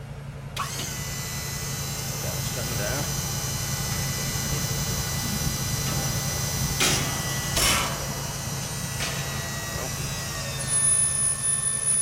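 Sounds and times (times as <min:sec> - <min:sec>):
engine idling: 0:00.0 - 0:12.0
hydraulic jacks droning: 0:00.6 - 0:12.0.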